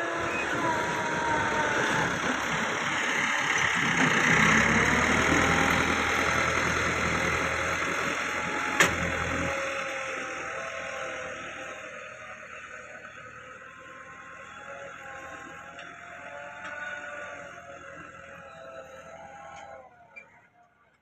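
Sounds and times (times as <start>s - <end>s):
tractor diesel engine under load: 0.0s - 20.6s.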